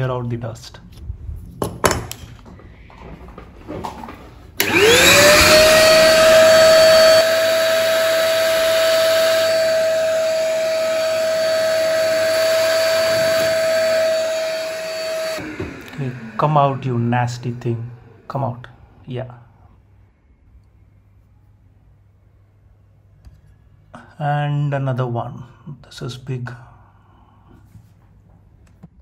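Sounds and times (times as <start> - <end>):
vacuum cleaner motor whine: 4.6 - 19.1.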